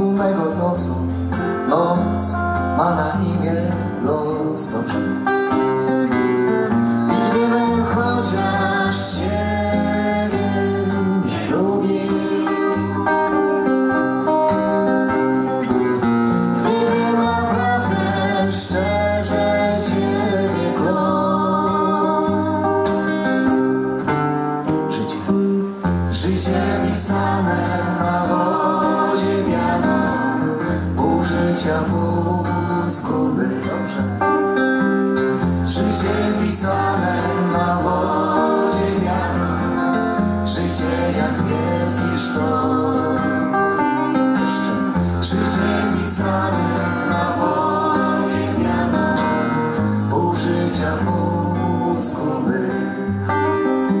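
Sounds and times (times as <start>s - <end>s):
acoustic guitars playing ballad: 0.0s - 54.0s
person singing: 7.1s - 13.7s, 16.6s - 23.3s, 35.5s - 54.0s.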